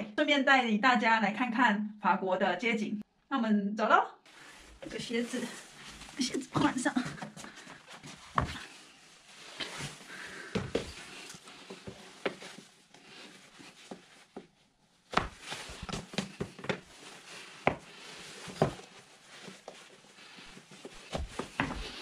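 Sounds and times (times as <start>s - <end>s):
rustling: 4.3s - 22.0s
shoes knocking on tiles: 10.5s - 11.0s, 15.1s - 16.9s, 17.7s - 17.9s, 21.1s - 22.0s.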